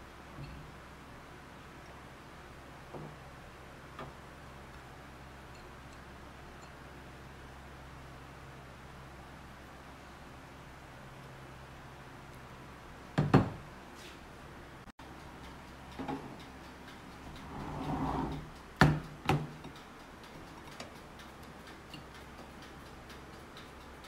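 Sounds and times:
faint steady ticking: 0.0s - 13.2s, 14.8s - 24.0s.

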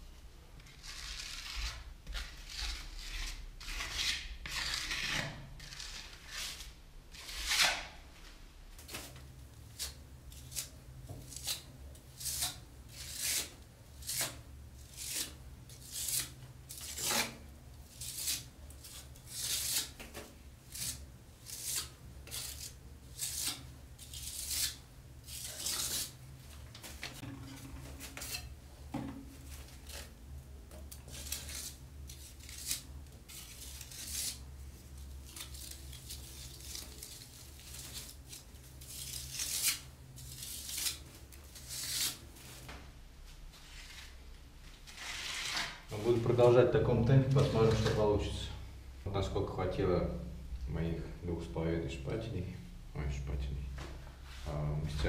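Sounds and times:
putty knife scraping plaster: 0.6s - 8.0s, 9.7s - 26.2s, 27.1s - 28.5s, 30.9s - 34.4s, 35.2s - 42.2s, 44.9s - 45.9s.

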